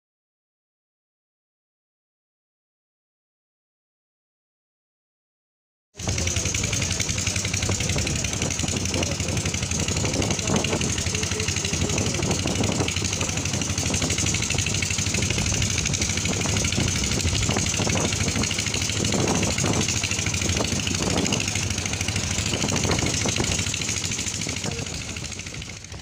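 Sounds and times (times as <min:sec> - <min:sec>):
motorised cart engine running: 0:06.0 - 0:26.0
wind noise on microphone: 0:07.4 - 0:26.0.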